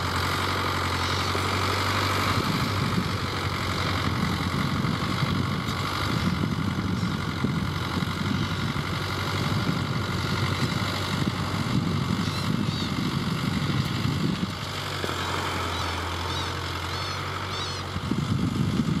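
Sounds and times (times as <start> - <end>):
tractor diesel engine running: 0.0 - 19.0
short high bird calls: 12.2 - 13.0, 15.1 - 17.9.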